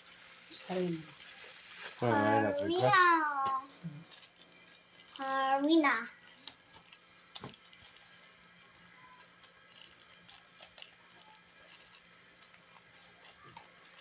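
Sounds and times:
fingers scrunching dry flour: 2.8 - 14.0.

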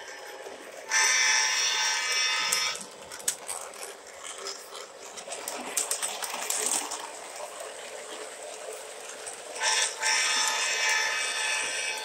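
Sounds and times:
model train wheels clicking: 0.0 - 12.0
model train horn: 9.6 - 12.0.

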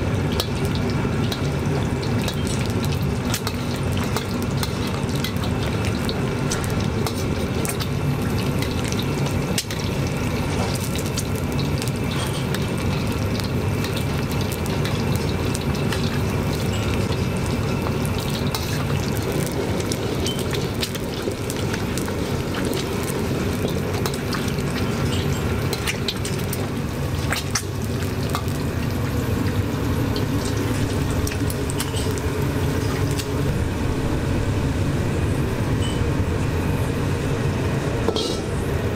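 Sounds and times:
eggs sizzling in hot oil: 0.0 - 38.9
low rushing noise: 30.8 - 38.9.

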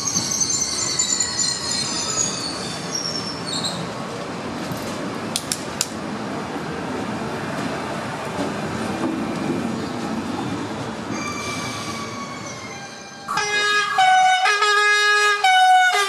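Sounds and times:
train wheel squeal: 0.0 - 3.9, 10.7 - 13.3
train rumbling: 0.0 - 16.0
sharp clicks: 5.3 - 6.0.

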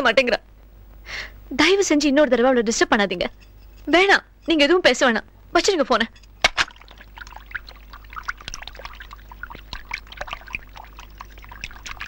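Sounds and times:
steady low hum: 0.0 - 12.0
water trickling and bubbling: 6.5 - 12.0.

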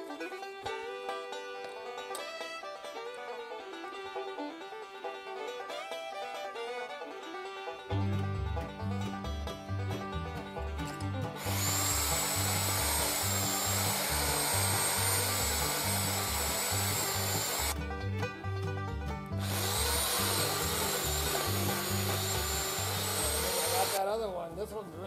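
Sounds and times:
banjo music: 0.0 - 25.0
pole saw whining: 11.3 - 17.8, 19.4 - 24.0.

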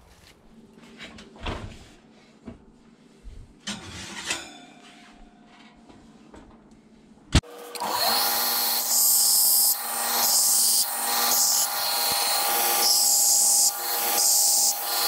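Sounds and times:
belt grinder grinding metal: 7.5 - 15.0.

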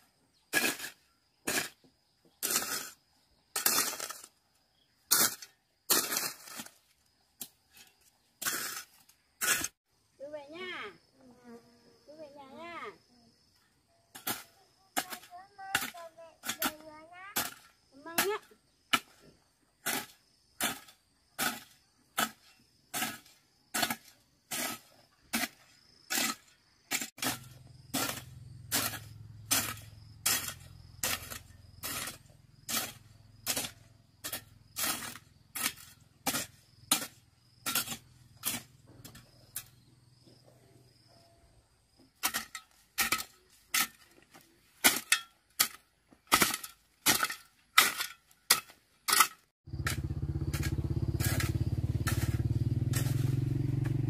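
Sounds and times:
hand tool striking: 14.2 - 16.8, 19.9 - 39.7, 42.2 - 54.0.

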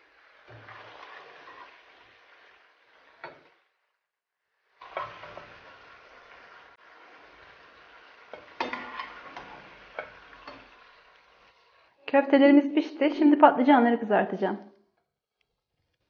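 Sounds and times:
meatballs sizzling in oil: 0.0 - 3.8, 4.4 - 12.0.

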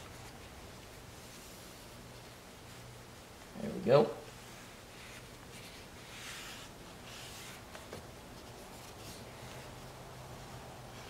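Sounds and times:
towel wiping screen: 4.2 - 11.0.

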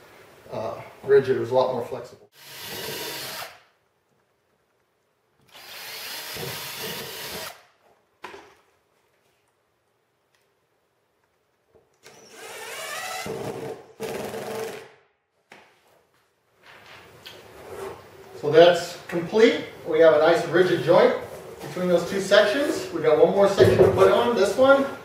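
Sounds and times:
cordless drill driving screws: 2.4 - 3.7, 5.5 - 7.7, 12.0 - 14.9.

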